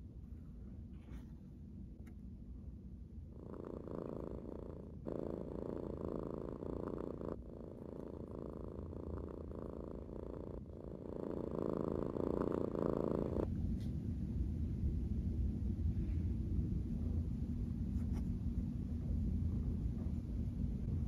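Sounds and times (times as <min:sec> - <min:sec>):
cat purring: 0:03.2 - 0:13.5.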